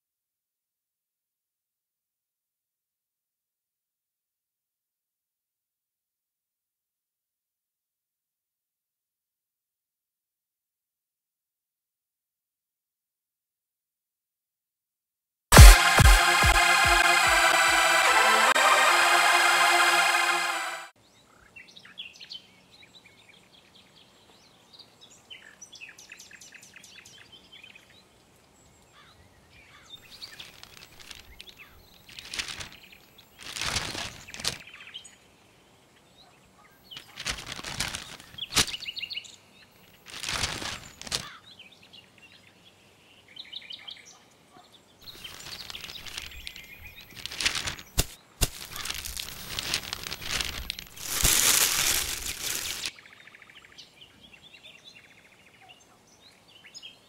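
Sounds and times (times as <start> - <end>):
paper and plastic rustling: 30.1 - 34.6, 37.0 - 38.8, 40.0 - 41.2, 45.1 - 52.9.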